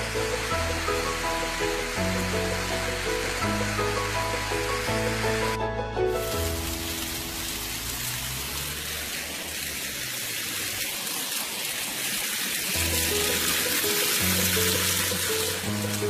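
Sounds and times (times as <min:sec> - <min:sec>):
instrumental background music: 0:00.0 - 0:08.0, 0:12.8 - 0:16.0
waterfall splashing into pool: 0:00.0 - 0:16.0.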